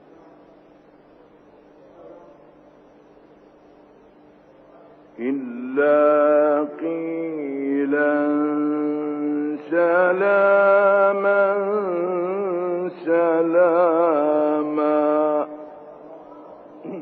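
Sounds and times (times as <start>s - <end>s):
man reciting melodically: 5.2s - 15.8s.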